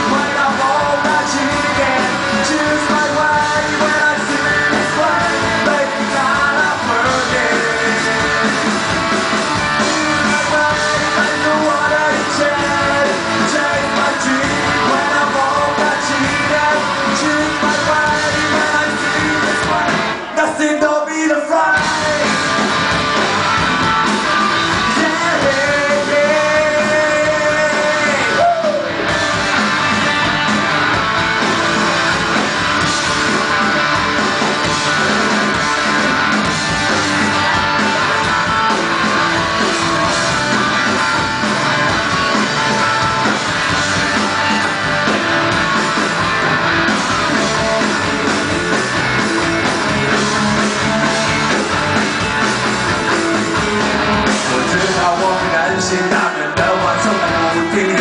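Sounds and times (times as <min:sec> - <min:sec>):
person singing: 0:00.0 - 0:08.8, 0:09.6 - 0:22.5, 0:24.3 - 0:29.0, 0:54.3 - 0:58.0
live rock band: 0:00.0 - 0:58.0.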